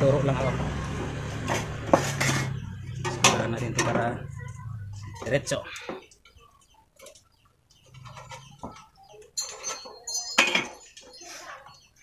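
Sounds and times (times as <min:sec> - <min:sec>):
sheet metal scraping: 0:01.1 - 0:04.1
metallic rattle and ring: 0:09.4 - 0:11.0.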